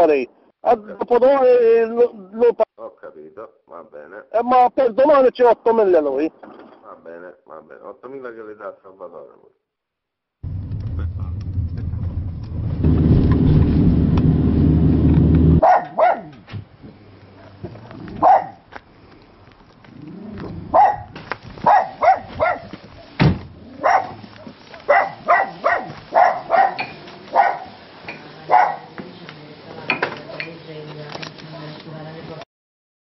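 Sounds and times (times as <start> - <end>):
car engine running: 10.4 - 15.6
dog barking: 15.6 - 16.4, 18.2 - 18.6, 20.7 - 23.2, 23.8 - 27.8, 28.5 - 28.9.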